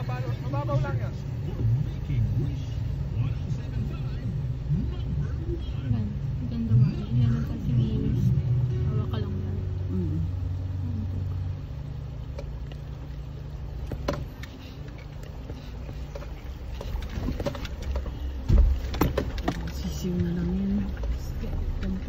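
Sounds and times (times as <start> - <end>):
car engine running: 0.0 - 22.0
vehicle knocks and thumps: 13.7 - 22.0.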